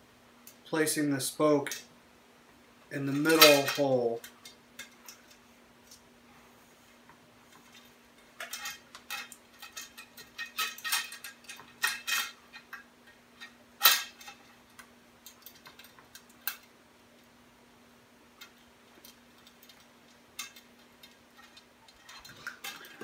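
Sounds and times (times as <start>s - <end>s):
bicycle spokes clicking and rattling: 8.4s - 16.7s, 18.4s - 23.0s.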